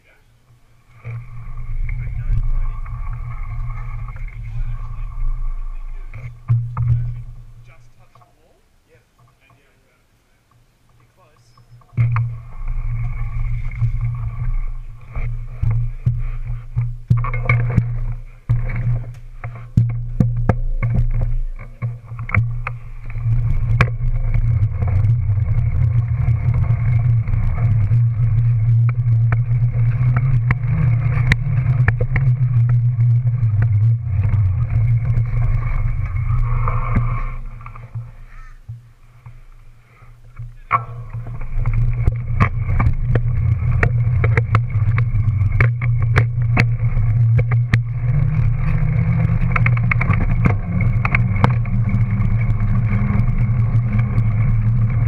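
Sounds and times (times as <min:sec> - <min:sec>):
bike tyre rumbling on pavement: 0:00.0 - 0:08.6, 0:11.8 - 0:55.0
knocks and rattles over bumps: 0:00.5 - 0:08.4, 0:11.8 - 0:39.5, 0:40.2 - 0:55.0
wind buffeting microphone: 0:12.0 - 0:38.2.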